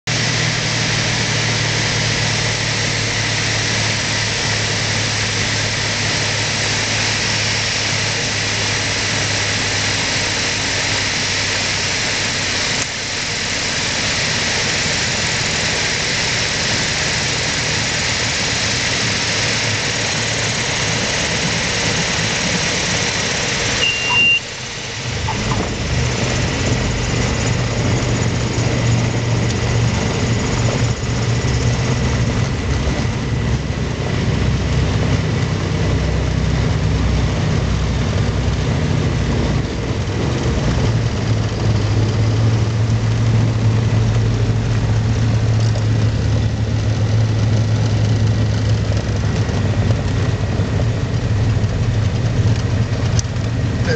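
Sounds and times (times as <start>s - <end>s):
propeller engine droning: 0.0s - 53.9s
rushing air: 0.1s - 53.9s
brief high beep: 23.8s - 24.6s.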